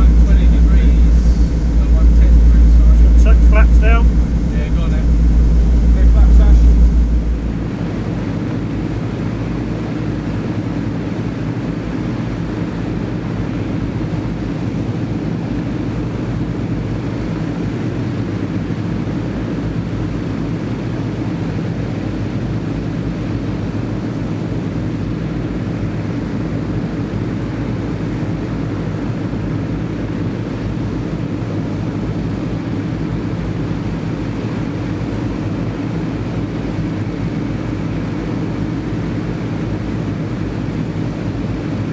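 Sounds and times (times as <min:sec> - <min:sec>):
aircraft piston engines droning: 0:00.0 - 0:08.6.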